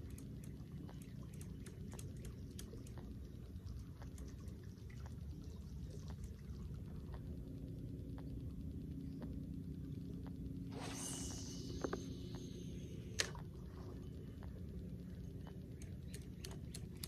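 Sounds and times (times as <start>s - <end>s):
trickling water: 0.0s - 9.5s
faint steady hum: 0.0s - 17.0s
low rumble: 0.0s - 17.0s
small ticks: 0.0s - 17.0s.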